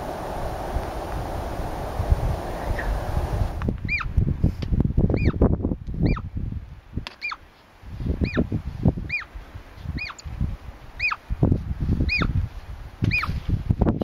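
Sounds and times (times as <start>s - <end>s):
low rumbling noise: 0.0s - 4.4s
marmot whistling: 3.9s - 4.1s, 5.1s - 5.4s, 6.0s - 6.3s, 8.2s - 8.4s, 10.0s - 10.2s, 11.0s - 11.2s, 12.1s - 12.3s.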